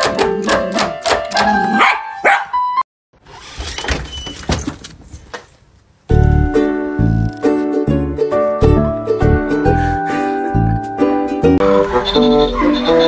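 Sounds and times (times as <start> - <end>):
dog barking: 1.7 - 2.6.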